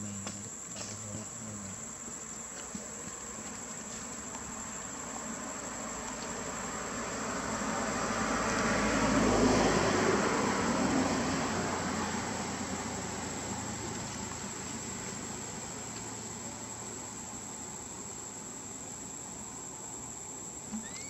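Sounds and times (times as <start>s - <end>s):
high insect trill: 0.0s - 21.0s
distant engine passing: 5.4s - 16.5s.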